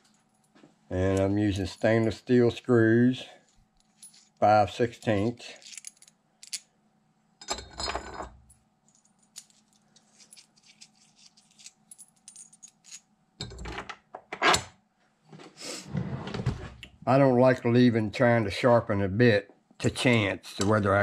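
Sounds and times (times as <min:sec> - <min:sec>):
metal screws clinking in hand: 0:03.5 - 0:06.7, 0:08.9 - 0:13.1.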